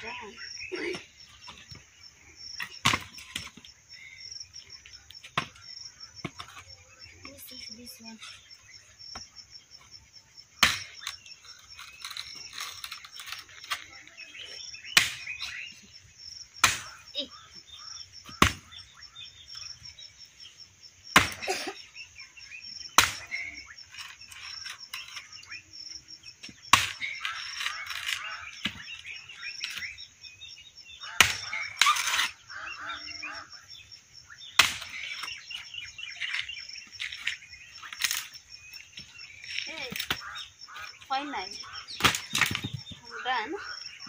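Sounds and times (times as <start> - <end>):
high insect chirr: 0.0 - 44.0
axe chopping wood: 2.6 - 3.6, 10.6 - 11.2, 14.9 - 15.5, 16.6 - 17.0, 18.2 - 18.8, 21.1 - 21.7, 23.0 - 23.5, 26.4 - 27.3, 31.1 - 32.2, 34.6 - 35.4, 42.0 - 42.9.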